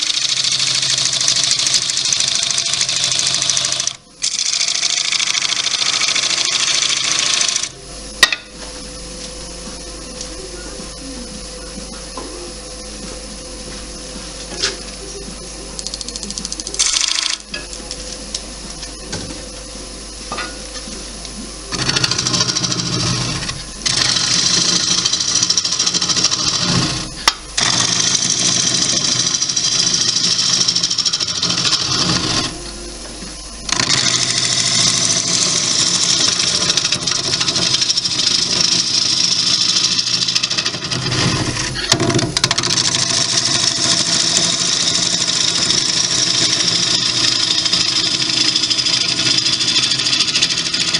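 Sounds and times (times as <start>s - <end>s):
gouge cutting wood on lathe: 0.0s - 7.7s, 21.7s - 32.7s, 33.7s - 50.9s
lathe humming: 0.0s - 50.9s.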